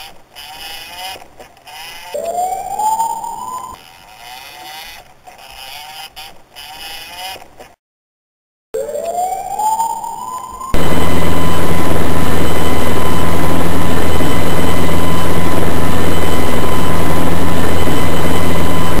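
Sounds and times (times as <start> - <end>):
whine rising in pitch: 2.0 - 3.8, 8.8 - 19.0.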